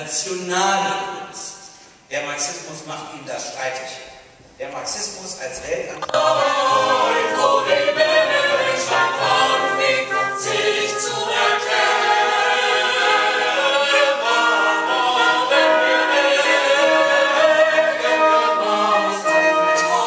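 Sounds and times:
small choir singing: 6.0s - 20.0s.

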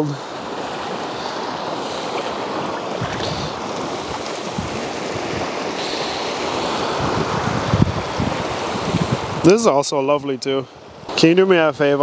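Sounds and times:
sea surf washing onto shore: 0.0s - 9.9s
wind buffeting microphone: 0.4s - 9.5s.

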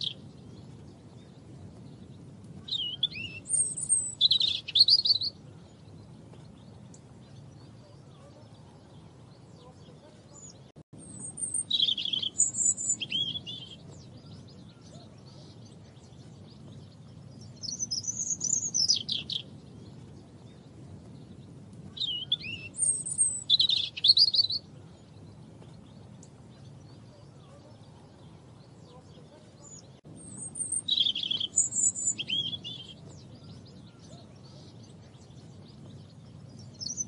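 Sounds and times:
robin singing: 0.0s - 37.0s.

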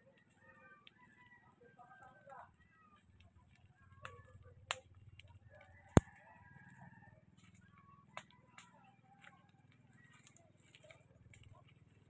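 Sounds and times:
brush fire crackling: 0.1s - 6.4s, 10.0s - 12.0s
fire pops and cracks: 3.2s - 5.4s.

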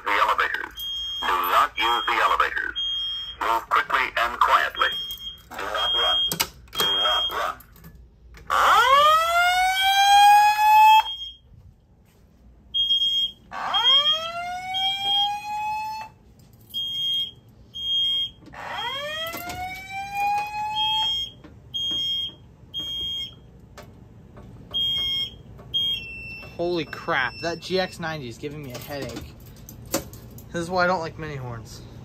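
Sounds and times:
fire alarm whoop tone: 0.2s - 3.6s, 4.2s - 7.6s, 8.5s - 11.5s, 12.8s - 23.4s, 24.8s - 28.0s
high-pitched alarm horn beeps: 0.2s - 7.7s, 9.6s - 11.4s, 12.8s - 23.5s, 24.8s - 28.2s.

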